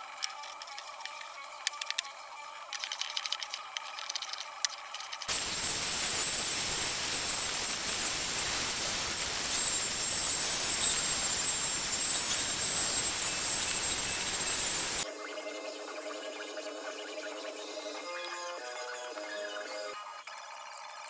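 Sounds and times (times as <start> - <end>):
belt sander running: 5.3 - 15.0.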